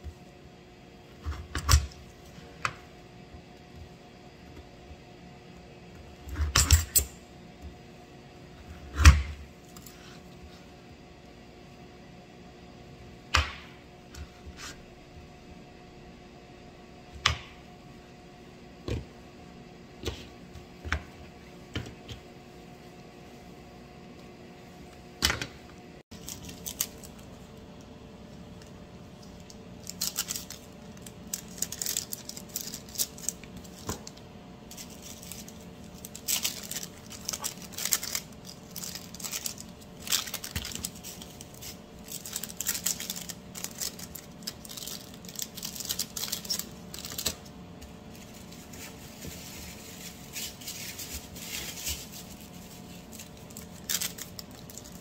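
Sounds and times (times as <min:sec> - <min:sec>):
steady low hum: 0:00.0 - 0:55.0
plastic bags crinkling: 0:26.1 - 0:27.3, 0:29.8 - 0:47.4, 0:48.0 - 0:55.0.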